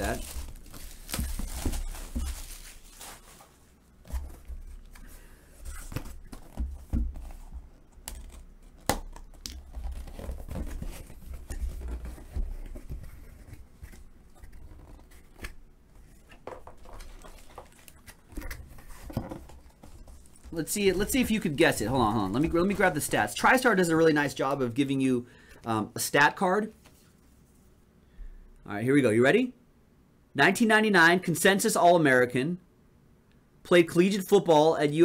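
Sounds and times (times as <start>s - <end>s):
plastic wrap tearing and crinkling: 0.0s - 5.0s, 16.2s - 23.6s
cardboard box being handled: 0.0s - 8.8s, 9.6s - 23.8s.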